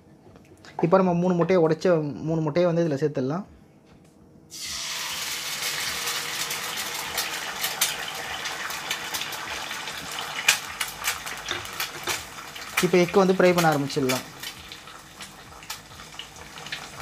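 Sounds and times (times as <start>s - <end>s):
eggs sizzling in hot oil: 4.5s - 17.0s
crackles and pops of frying: 4.6s - 17.0s.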